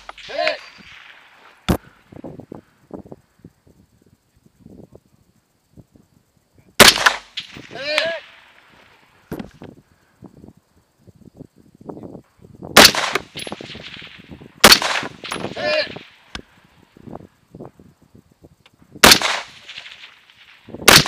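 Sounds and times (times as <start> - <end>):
rifle shots with echo: 0.0 - 1.9, 6.8 - 8.7, 12.8 - 16.3, 19.0 - 21.0.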